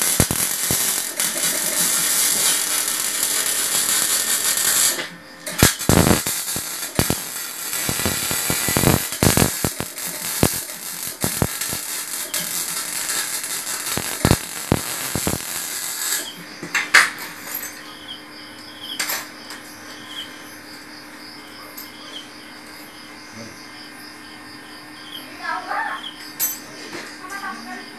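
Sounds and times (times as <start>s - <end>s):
arc welding crackling hiss: 0.0s - 17.5s
steady low hum: 0.0s - 25.4s
crickets chirping: 0.0s - 27.9s.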